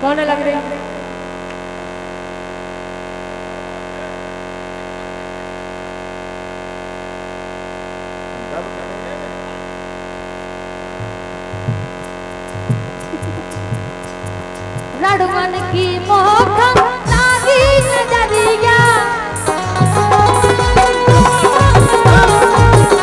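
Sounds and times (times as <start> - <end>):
harmonium sustained chord: 0.0 - 23.0
drum beats: 10.9 - 23.0.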